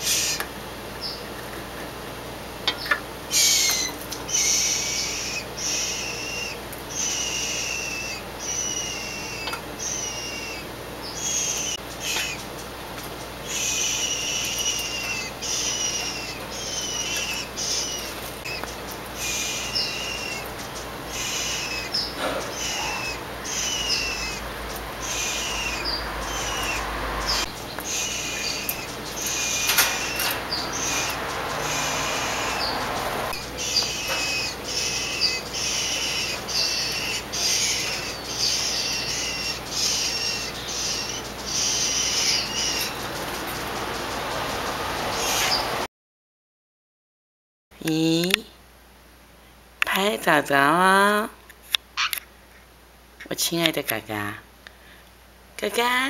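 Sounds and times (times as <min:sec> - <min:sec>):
scrub-jay harsh calls: 0:13.4 - 0:45.8.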